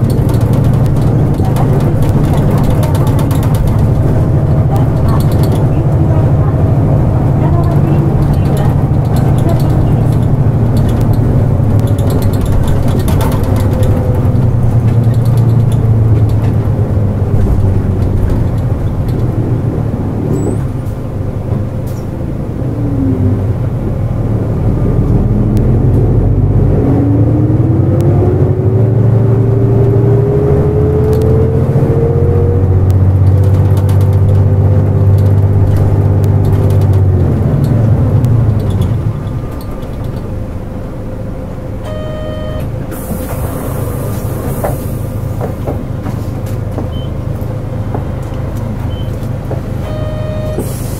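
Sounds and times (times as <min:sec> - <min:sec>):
bus diesel engine drone: 0:00.0 - 0:50.9
bus whine rising in pitch: 0:17.9 - 0:33.3, 0:36.0 - 0:45.4, 0:46.8 - 0:50.9.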